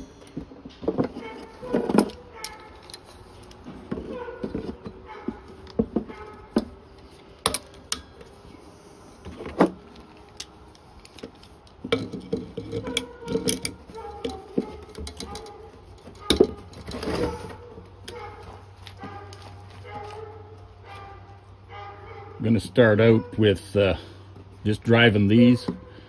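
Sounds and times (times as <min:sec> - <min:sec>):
metal hand tools clinking: 0:01.2 - 0:03.6, 0:11.9 - 0:17.0.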